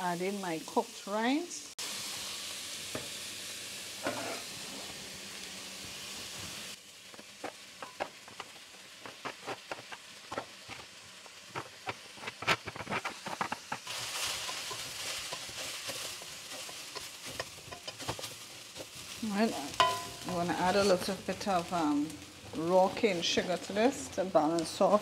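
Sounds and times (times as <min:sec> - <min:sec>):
vegetables sizzling in a pot: 0:00.0 - 0:25.0.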